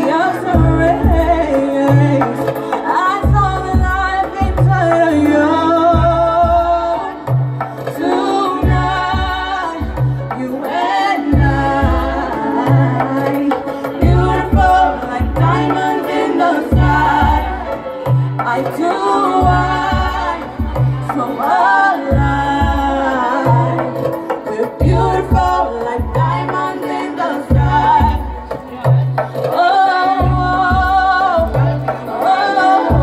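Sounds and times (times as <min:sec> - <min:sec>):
person singing: 0:00.0 - 0:33.0
deep bass beat: 0:00.4 - 0:02.3, 0:03.2 - 0:07.6, 0:11.3 - 0:13.2, 0:14.0 - 0:16.0, 0:16.7 - 0:18.6, 0:19.4 - 0:21.2, 0:22.1 - 0:24.0, 0:24.8 - 0:26.7, 0:27.5 - 0:29.2, 0:30.2 - 0:32.0.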